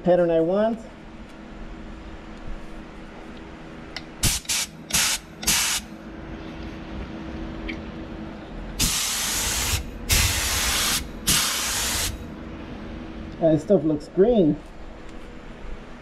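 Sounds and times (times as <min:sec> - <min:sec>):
paint spray gun hissing: 0:04.2 - 0:05.9, 0:08.8 - 0:12.2.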